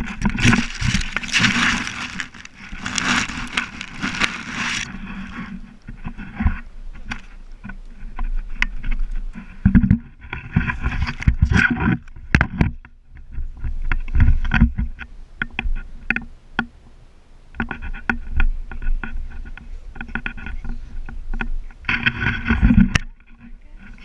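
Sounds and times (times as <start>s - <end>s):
rustling through long grass: 0.0s - 11.9s.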